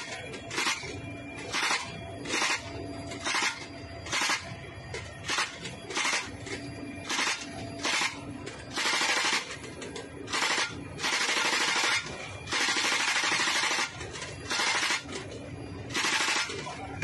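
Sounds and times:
helicopter drone: 0.0 - 17.0
machine gun bursts: 1.5 - 2.6, 3.2 - 4.5, 5.2 - 6.3, 7.1 - 9.5, 10.3 - 15.1, 15.9 - 16.7.

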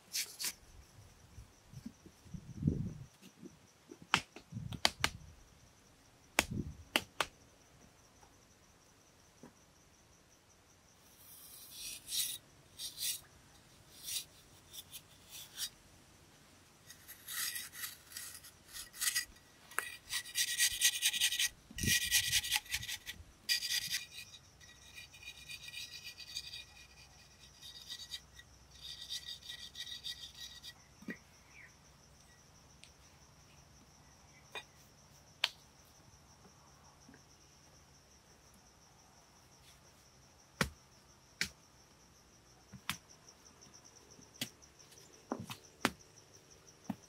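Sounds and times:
scraper rasping on clay: 11.2 - 13.3, 13.9 - 15.7, 16.9 - 30.7.

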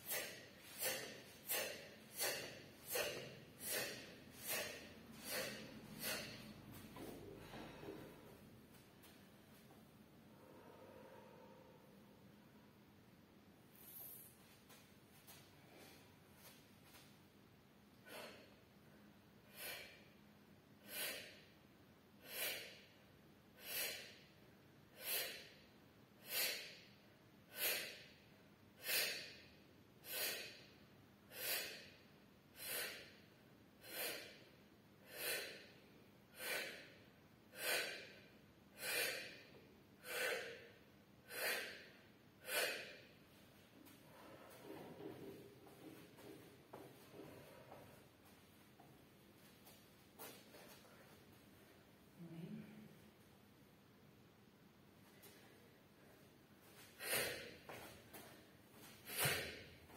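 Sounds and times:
woman's forceful exhalations: 0.0 - 8.3.

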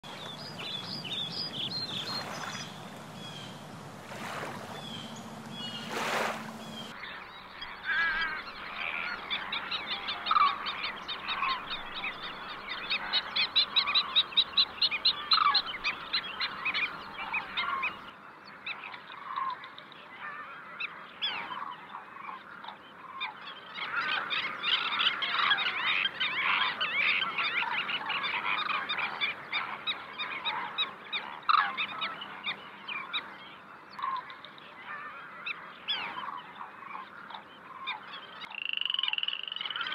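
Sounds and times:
birds chattering: 0.0 - 12.1
low steady hum: 0.1 - 7.0.

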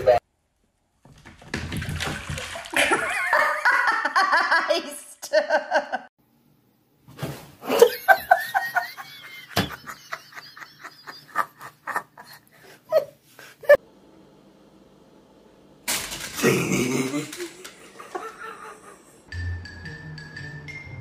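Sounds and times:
person laughing: 2.8 - 6.1, 7.6 - 13.8, 16.4 - 19.3.

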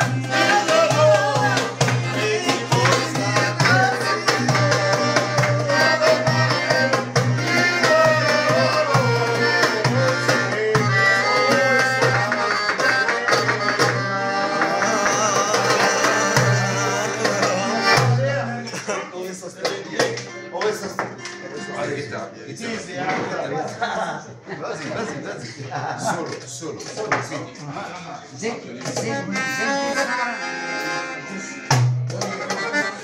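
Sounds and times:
hand drum beat: 0.0 - 18.3
wavering lead melody: 13.7 - 18.5.

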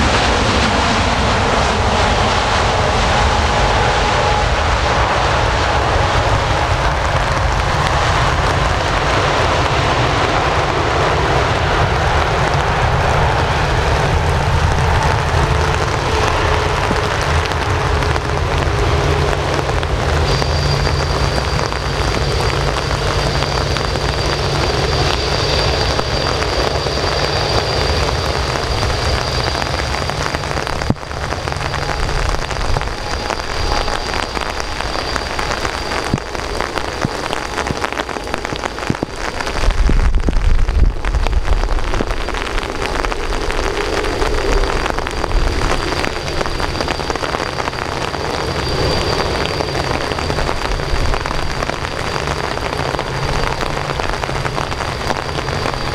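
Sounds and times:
heavy rain hiss: 0.0 - 55.9
jet engines rumbling: 0.0 - 55.9.

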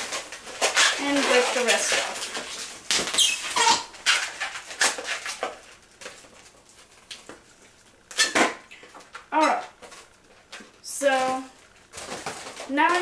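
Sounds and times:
balloons squeaking and rubbing: 0.0 - 6.0, 8.1 - 10.2
balloon squeal bending in pitch: 3.1 - 4.6.

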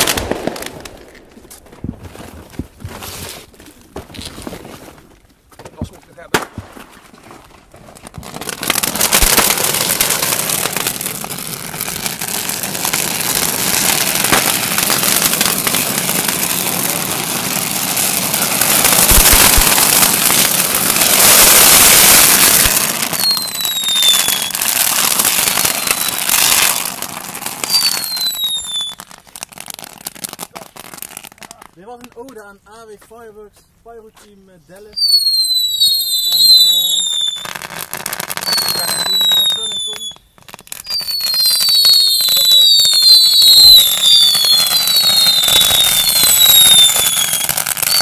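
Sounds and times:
fireworks crackling: 0.0 - 48.0
firework whistles falling: 8.4 - 16.7, 18.0 - 26.8, 27.4 - 29.2, 35.0 - 48.0.

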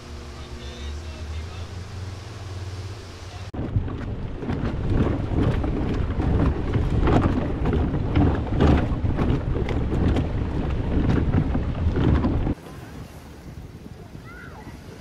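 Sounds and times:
wind buffeting microphone: 3.4 - 15.0.

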